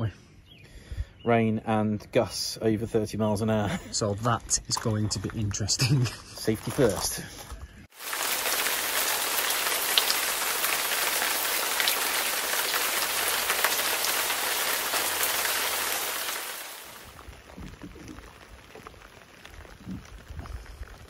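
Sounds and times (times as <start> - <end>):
rain falling: 7.9 - 21.0.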